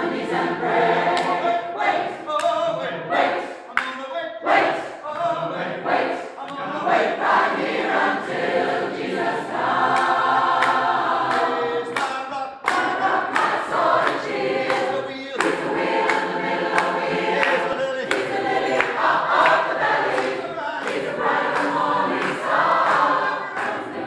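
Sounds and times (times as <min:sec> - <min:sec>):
choir singing a cappella: 0:00.0 - 0:24.0
handclaps: 0:01.1 - 0:01.4, 0:02.3 - 0:02.7, 0:03.7 - 0:04.1, 0:09.8 - 0:24.0.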